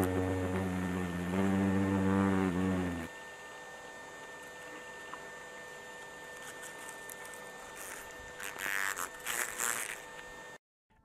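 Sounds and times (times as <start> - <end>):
hornet buzzing: 0.0 - 3.2, 7.8 - 10.0.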